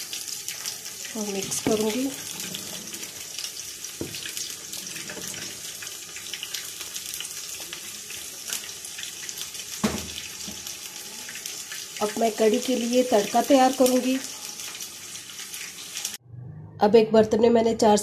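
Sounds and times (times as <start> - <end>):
ladle stirring and sloshing: 1.2 - 6.3.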